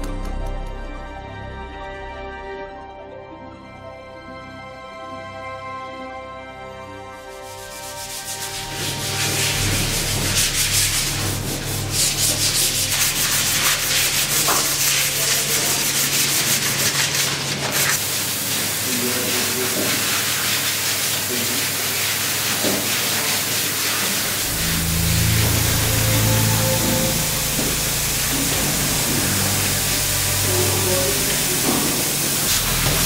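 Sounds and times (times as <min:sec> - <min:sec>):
sandpaper rubbing on wood: 0:07.2 - 0:33.0
low steady hum: 0:24.2 - 0:31.7.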